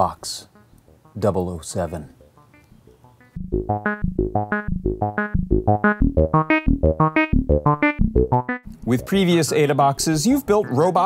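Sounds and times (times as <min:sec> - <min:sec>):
fast synthesizer notes: 0:03.2 - 0:11.0.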